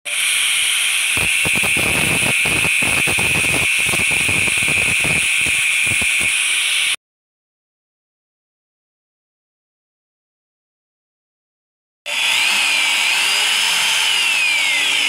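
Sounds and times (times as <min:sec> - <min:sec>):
angle grinder whining: 0:00.1 - 0:07.0, 0:12.1 - 0:15.0.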